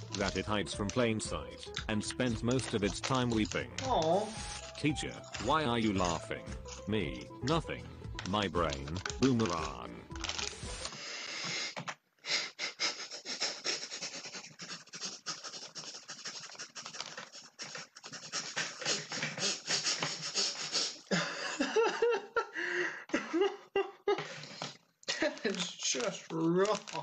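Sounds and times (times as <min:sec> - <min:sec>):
man laughing: 0:18.4 - 0:25.2.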